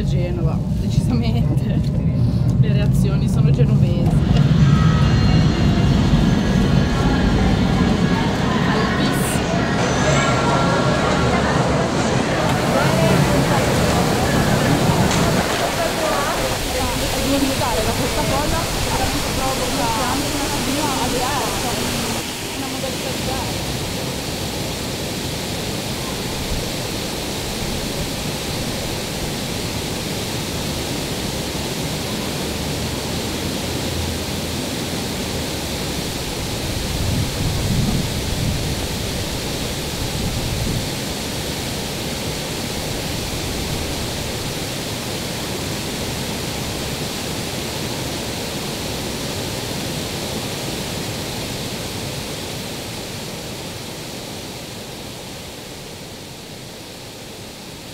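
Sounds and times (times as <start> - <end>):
short low rumble: 0.0 - 19.6
fountain water splashing: 6.0 - 57.9.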